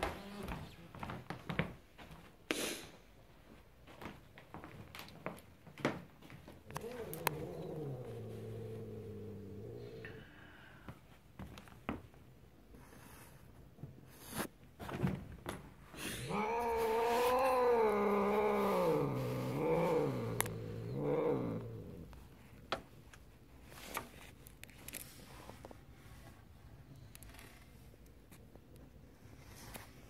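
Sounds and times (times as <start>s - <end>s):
cat yowling: 16.3s - 21.8s.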